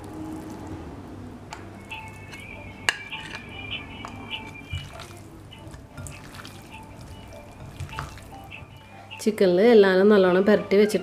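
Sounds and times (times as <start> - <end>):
soft background music: 0.0 - 11.0
wet squelching of raw meat: 4.8 - 8.4.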